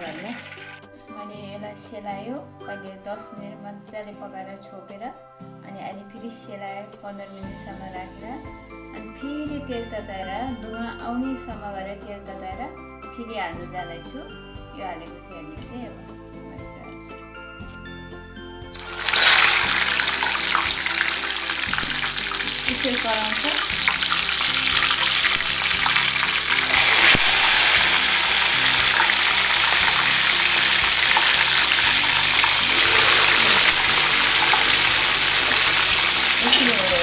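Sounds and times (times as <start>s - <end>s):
chicken sizzling in hot oil: 0.0s - 0.8s, 18.8s - 37.0s
background music: 0.0s - 37.0s.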